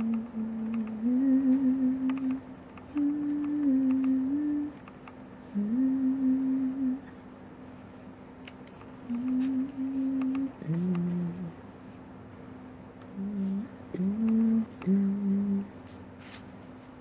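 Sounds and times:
person humming: 0:00.0 - 0:04.8, 0:05.4 - 0:07.1, 0:09.1 - 0:11.6, 0:13.1 - 0:15.8.

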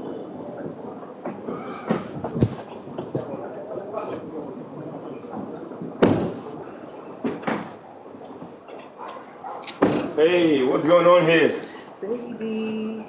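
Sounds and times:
sharp knocks and thuds: 0:01.2 - 0:03.4, 0:05.3 - 0:06.5, 0:07.2 - 0:07.8, 0:09.7 - 0:10.2.

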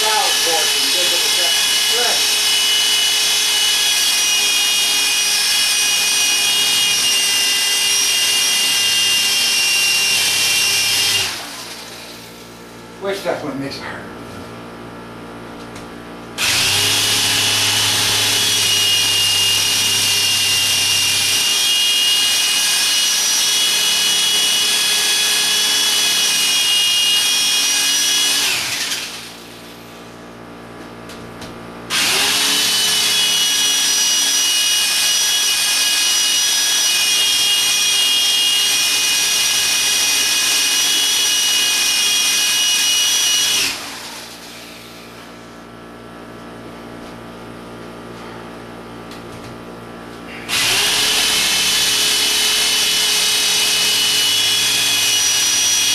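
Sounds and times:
electric drill boring into concrete: 0:00.0 - 0:12.3, 0:16.4 - 0:29.6, 0:31.9 - 0:45.2, 0:50.3 - 0:55.9.

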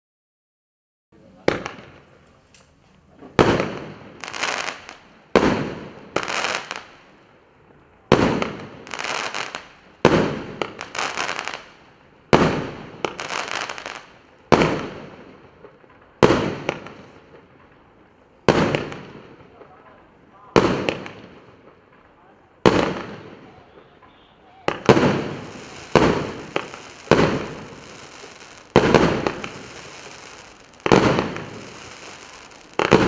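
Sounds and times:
firework launches: 0:24.7 - 0:33.0
shells bursting into crackling sparks: 0:24.7 - 0:33.0.

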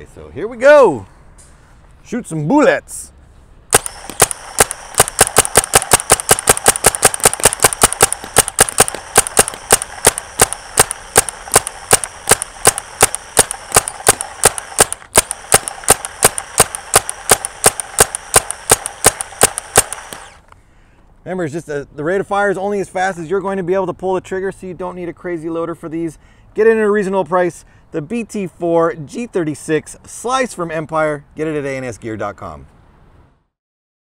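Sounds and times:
paintball marker firing pops: 0:03.7 - 0:20.6.

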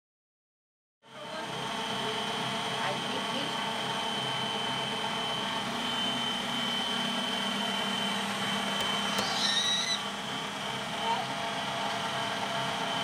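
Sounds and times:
stand mixer motor whirring: 0:01.2 - 0:13.0
child squealing: 0:09.1 - 0:10.1.

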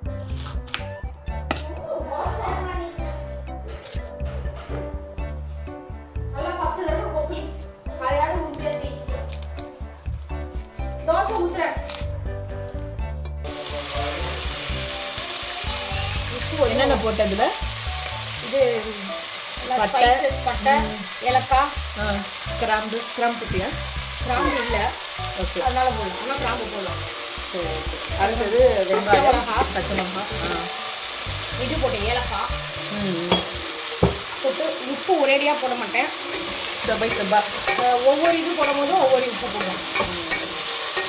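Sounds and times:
onions sizzling in oil: 0:09.2 - 0:41.0
metal spoon scraping a pot: 0:36.2 - 0:41.0.

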